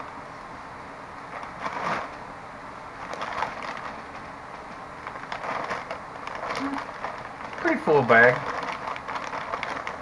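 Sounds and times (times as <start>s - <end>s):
plastic bag rustling: 1.3s - 2.2s, 2.9s - 4.2s, 5.0s - 10.0s.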